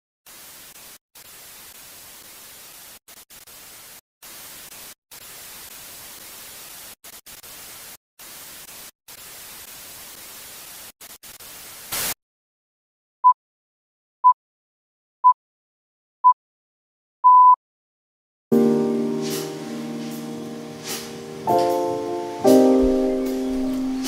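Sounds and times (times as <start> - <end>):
television static hiss: 0.4 - 12.1, 18.6 - 24.0.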